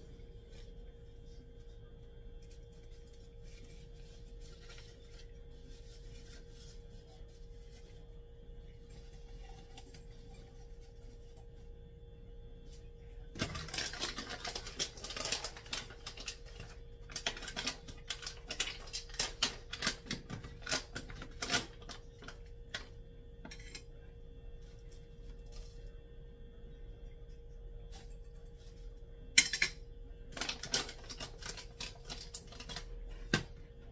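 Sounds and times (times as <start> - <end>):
steady faint hum: 0.0 - 33.9
foil bag crinkling: 13.3 - 22.9, 30.3 - 33.2.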